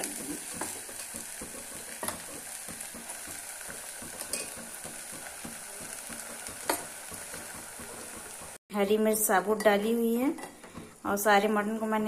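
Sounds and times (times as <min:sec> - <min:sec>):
meat sizzling in hot oil: 0:00.0 - 0:08.6.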